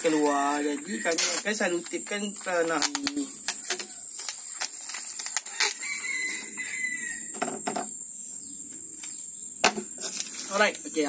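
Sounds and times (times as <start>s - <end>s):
adhesive tape pulled off roll: 1.1s - 1.6s, 2.6s - 6.5s.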